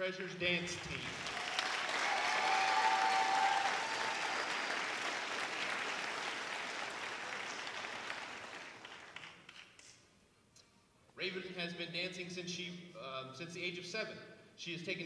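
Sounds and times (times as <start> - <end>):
audience applauding: 0.7 - 9.8.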